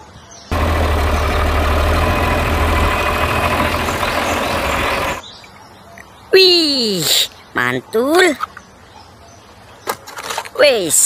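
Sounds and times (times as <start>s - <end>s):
tractor engine idling: 0.5s - 5.2s.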